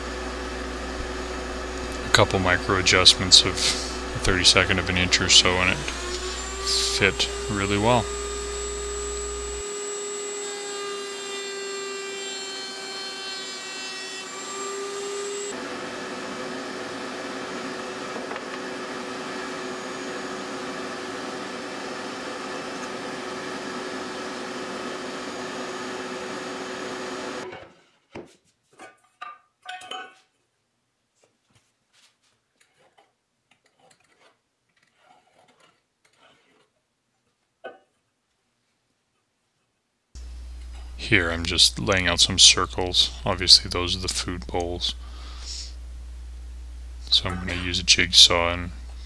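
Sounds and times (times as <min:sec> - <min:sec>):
router whining: 0:00.0 - 0:27.5, 0:40.2 - 0:46.0, 0:46.9 - 0:49.0.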